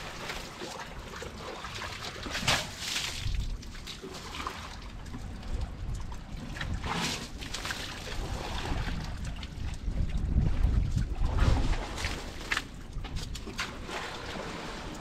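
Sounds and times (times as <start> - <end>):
water trickling: 0.0 - 15.0
elephant splashing water: 13.4 - 15.0.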